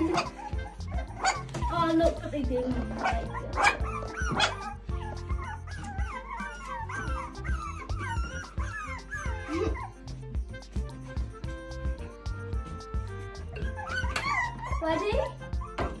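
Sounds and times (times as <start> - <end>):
background music: 0.0 - 16.0
puppies whining and yipping: 0.0 - 16.0.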